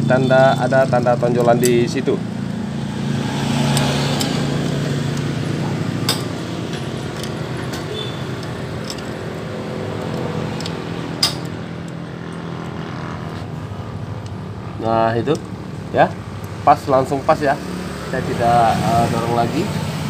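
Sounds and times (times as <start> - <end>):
light metallic clinks: 7.1 - 9.2.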